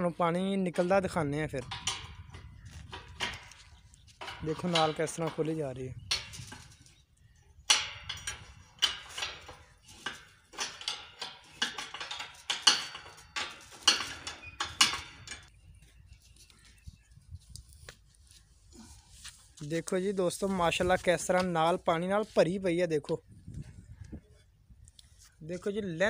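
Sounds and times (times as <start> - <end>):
spanner clinking on bolts: 1.2 - 7.0, 7.6 - 15.5.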